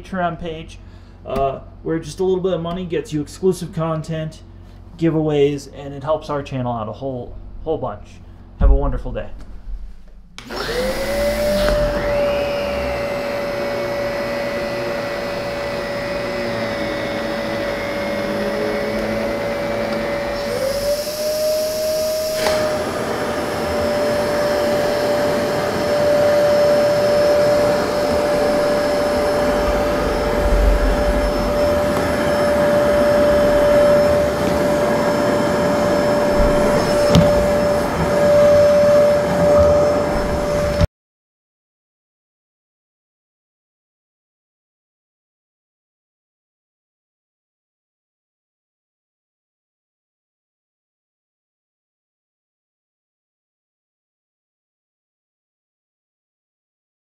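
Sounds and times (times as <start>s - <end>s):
vacuum cleaner high whine: 10.4s - 40.9s.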